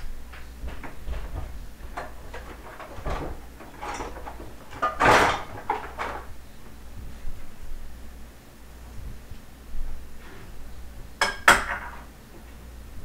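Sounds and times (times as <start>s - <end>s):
dishes clattering on a counter: 0.7s - 6.3s, 11.2s - 12.1s.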